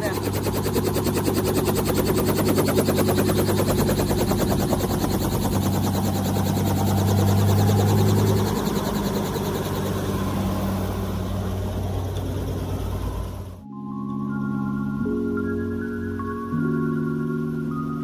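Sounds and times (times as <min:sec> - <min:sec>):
helicopter rotor chopping: 0:00.0 - 0:13.6
helicopter engine hum: 0:00.0 - 0:18.0.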